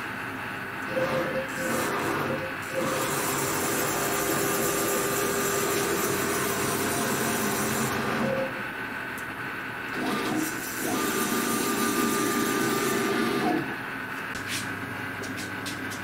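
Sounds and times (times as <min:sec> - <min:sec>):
router motors whirring: 0:00.8 - 0:08.6, 0:09.9 - 0:13.8.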